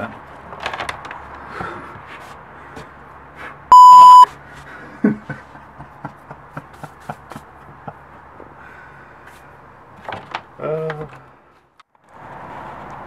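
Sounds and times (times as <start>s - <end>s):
censor bleep: 3.7s - 4.3s.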